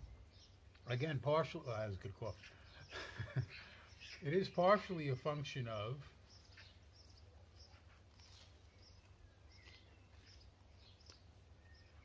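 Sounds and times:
faint bird chirps: 1.6 - 4.7, 6.2 - 12.0.

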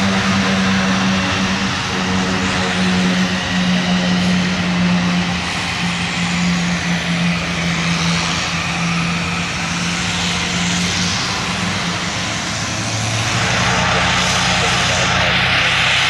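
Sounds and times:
propeller and turbine hiss: 0.0 - 16.0
turboprop engine hum: 0.0 - 16.0.

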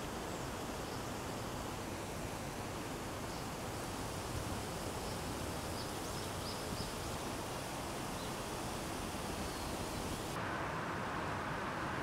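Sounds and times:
riverside hiss: 0.0 - 12.0
small bird chirping: 5.0 - 7.4.

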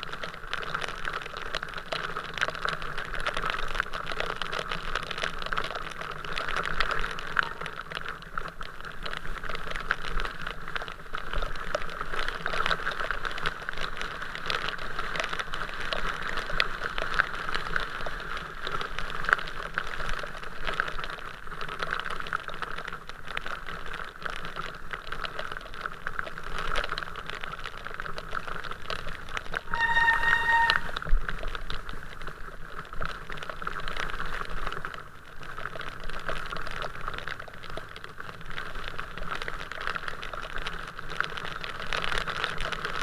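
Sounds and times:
raindrops ticking near microphone: 0.0 - 43.0
car horn honk: 29.7 - 31.0.

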